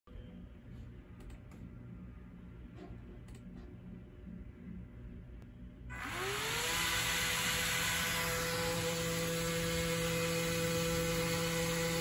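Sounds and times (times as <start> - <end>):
electric motor whine: 5.9 - 12.0.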